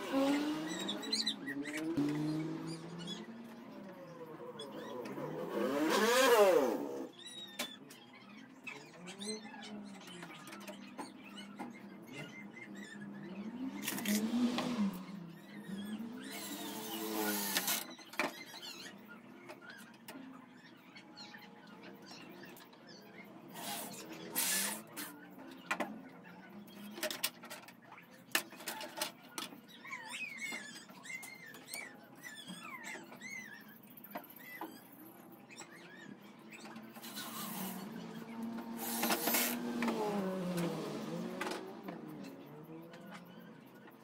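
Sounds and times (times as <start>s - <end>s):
small birds chirping: 0.0s - 44.0s
cordless drill driving screws: 16.3s - 17.8s, 23.6s - 24.8s, 38.7s - 40.6s.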